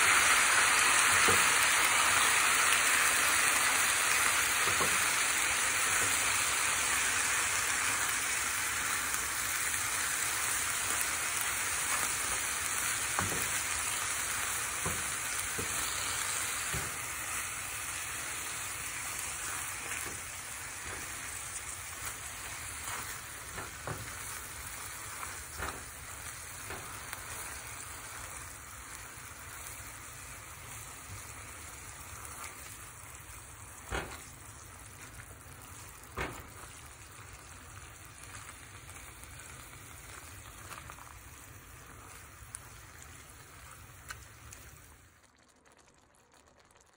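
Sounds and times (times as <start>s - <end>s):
food sizzling in a pan: 0.0s - 46.9s.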